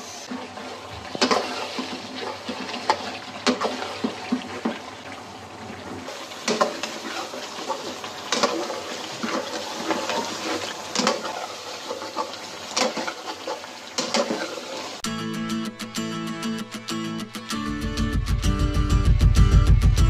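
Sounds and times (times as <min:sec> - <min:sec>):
meat sizzling: 0:06.1 - 0:15.0.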